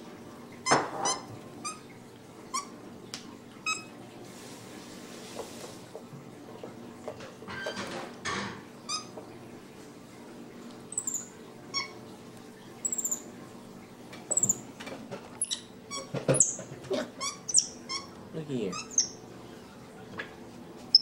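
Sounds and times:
monkey squeaking and chirping: 10.9s - 12.0s, 12.8s - 13.3s, 14.3s - 14.6s, 15.4s - 18.1s, 18.7s - 19.2s.

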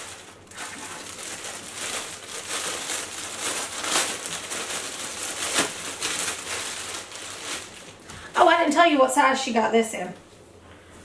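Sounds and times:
plastic bag crinkling: 0.0s - 8.5s.

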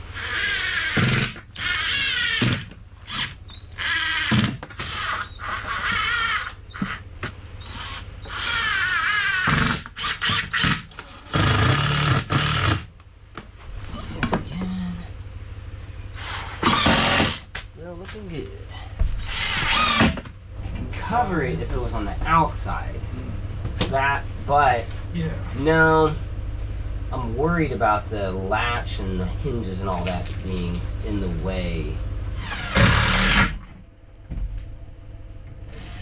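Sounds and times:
power drill driving screws: 0.2s - 6.5s, 7.6s - 12.9s, 16.2s - 17.4s, 19.2s - 20.2s, 32.4s - 33.6s, 35.7s - 36.0s.

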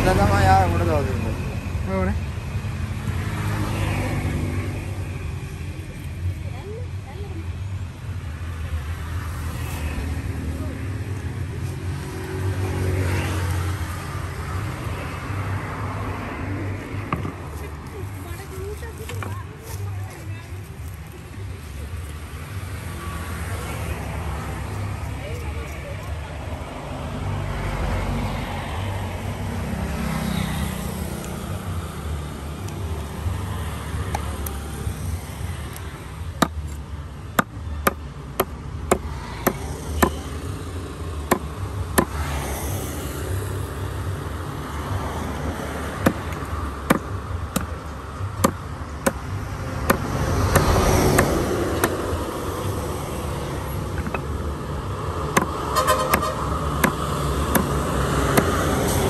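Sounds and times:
knife chopping on wooden block: 46.9s - 47.7s, 55.3s - 58.6s.

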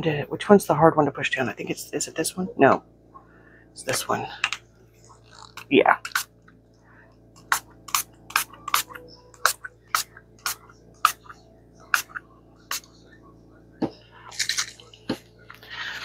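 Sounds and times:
pump spray bottle spraying: 6.0s - 6.3s, 7.4s - 11.3s, 11.9s - 12.9s.

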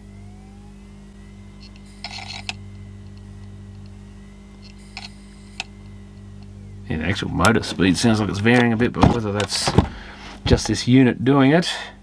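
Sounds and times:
faint high whine: 0.0s - 12.0s
hard drive motor hum: 0.0s - 12.0s
hard drive clicking: 1.6s - 6.6s, 7.2s - 10.8s.

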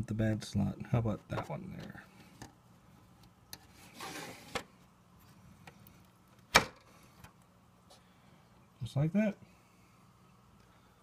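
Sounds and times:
sharp click of card seating: 6.5s - 6.8s.

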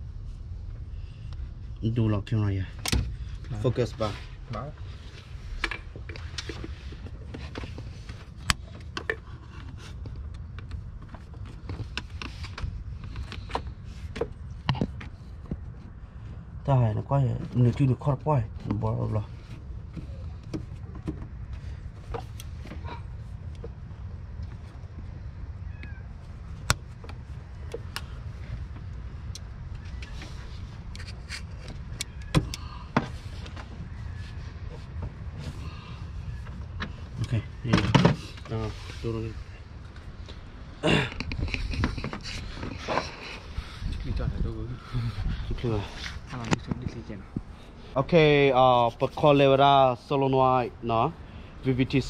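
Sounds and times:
steady low rumble: 0.0s - 52.0s.

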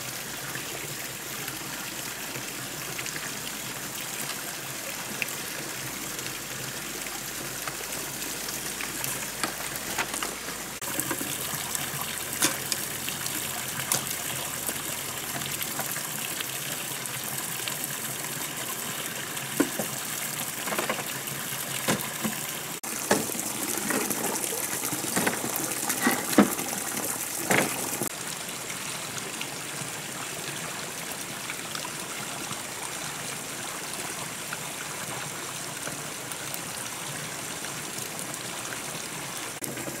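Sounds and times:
water trickling: 0.0s - 40.0s
bamboo sticks clattering: 9.1s - 11.4s.

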